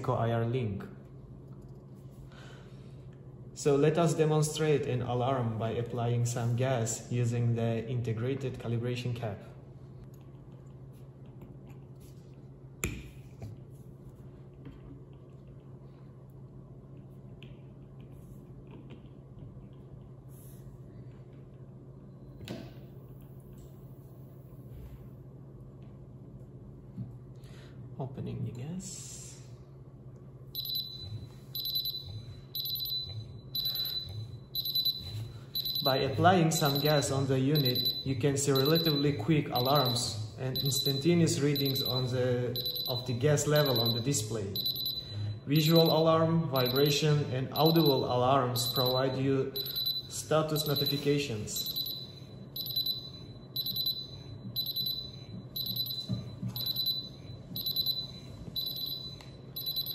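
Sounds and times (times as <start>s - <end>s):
high alarm beeps: 30.6s - 59.9s.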